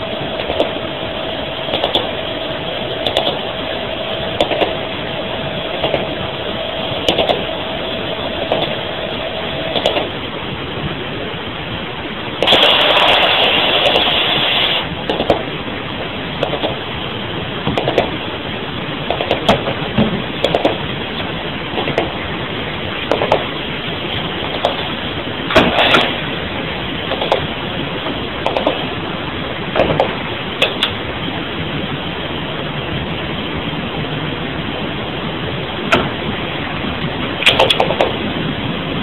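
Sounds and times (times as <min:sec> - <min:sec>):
pulsed radio interference ticks: 0:00.0 - 0:10.2, 0:20.4 - 0:22.2, 0:24.4 - 0:24.9, 0:27.1 - 0:28.9
radio static hiss: 0:00.0 - 0:32.8.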